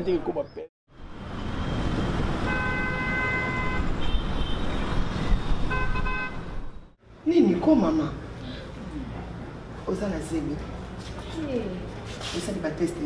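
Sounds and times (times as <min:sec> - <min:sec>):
street traffic noise: 0:00.0 - 0:13.0
car horns honking: 0:02.4 - 0:06.9.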